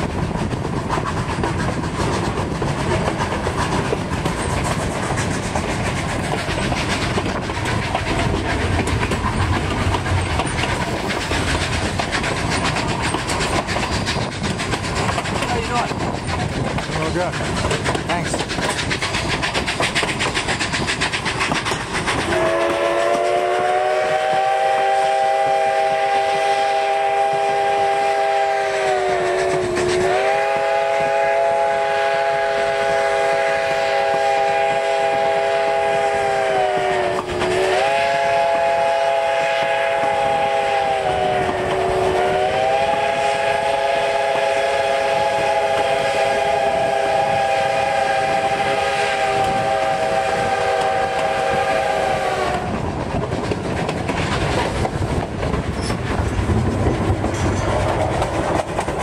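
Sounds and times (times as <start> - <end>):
train wheels clattering on rails: 0.0 - 59.0
steam locomotive chime whistle: 22.3 - 52.7.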